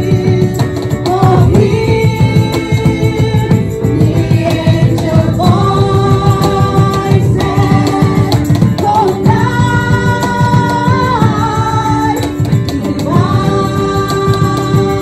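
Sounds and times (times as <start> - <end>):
acoustic guitar: 0.0 - 15.0
group singing a carol: 0.0 - 15.0.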